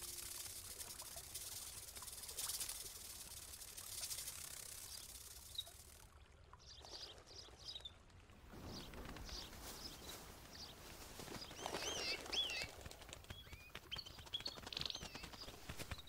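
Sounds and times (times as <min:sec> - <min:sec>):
soft steady hiss: 0:00.0 - 0:13.5
small birds chirping: 0:00.1 - 0:08.0, 0:08.6 - 0:16.0
soft rustle: 0:08.4 - 0:13.4.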